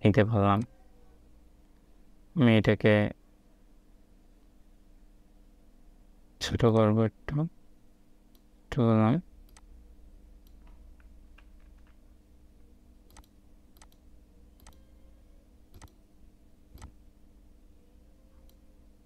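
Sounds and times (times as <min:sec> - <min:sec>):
low steady hum: 0:00.0 - 0:19.0
faint computer mouse clicks: 0:13.1 - 0:14.0, 0:14.6 - 0:14.8, 0:15.7 - 0:16.0.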